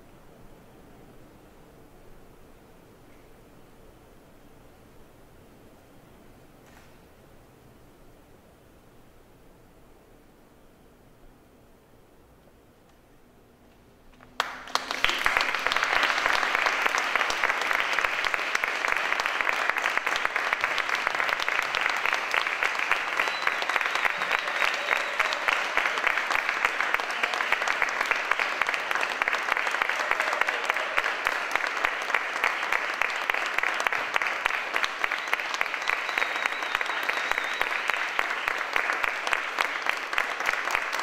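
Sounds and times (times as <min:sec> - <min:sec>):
audience applause: 0:14.2 - 0:41.0.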